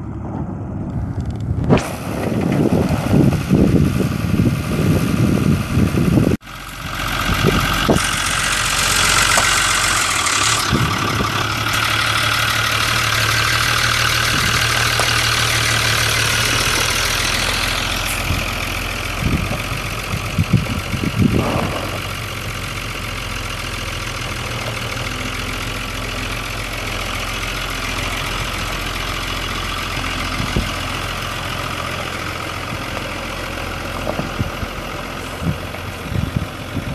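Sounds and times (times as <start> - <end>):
diesel truck engine running: 0.0 - 36.9.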